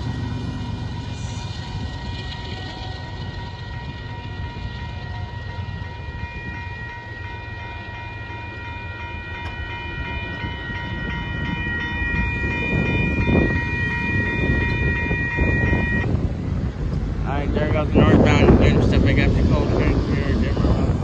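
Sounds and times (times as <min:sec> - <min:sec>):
crossing bell clanging: 0:00.0 - 0:17.0
low rumbling noise: 0:10.0 - 0:21.0.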